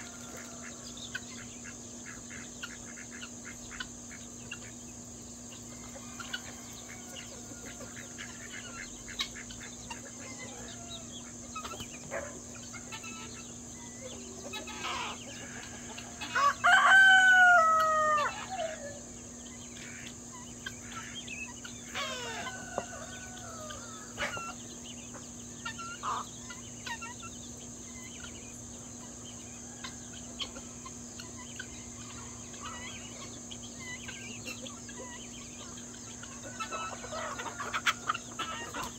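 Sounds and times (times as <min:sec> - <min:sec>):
rooster crowing: 0:00.0 - 0:01.0, 0:05.7 - 0:08.2, 0:14.8 - 0:19.1, 0:21.9 - 0:24.4, 0:29.6 - 0:30.5
chickens clucking and chirping: 0:00.0 - 0:38.9
high insect drone: 0:00.0 - 0:38.9.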